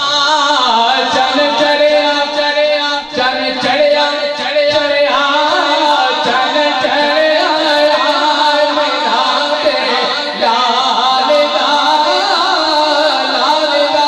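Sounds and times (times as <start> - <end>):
man singing through loudspeakers: 0.0 - 14.0.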